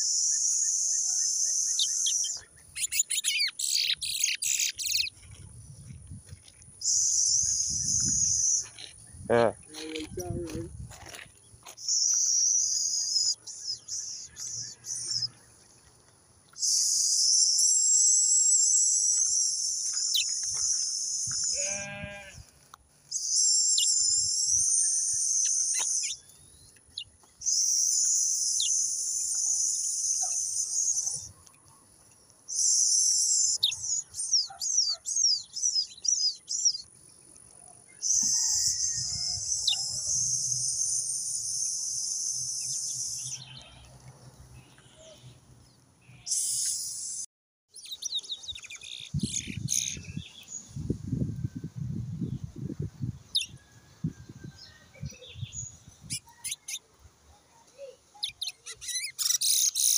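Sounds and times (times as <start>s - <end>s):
short bleat: 21.5s - 22.4s.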